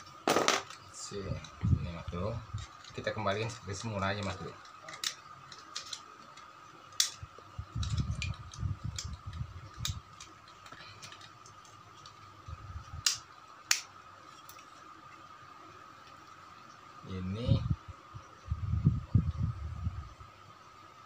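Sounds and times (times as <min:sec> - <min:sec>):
plastic clicks and snaps: 0:04.2 - 0:07.2, 0:13.0 - 0:13.9.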